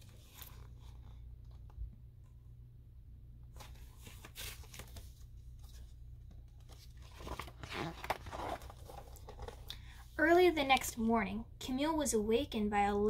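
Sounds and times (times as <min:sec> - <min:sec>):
book pages rustling: 0:00.0 - 0:01.8, 0:03.5 - 0:09.7.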